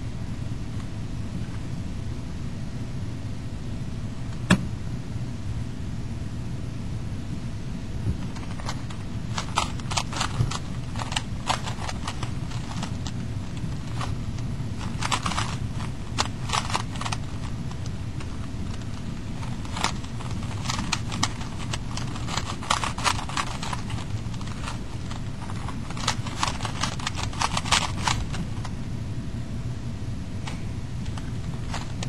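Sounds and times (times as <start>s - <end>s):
low room hum: 0.0s - 32.0s
puzzle cube clicking: 8.3s - 28.7s, 31.1s - 32.0s.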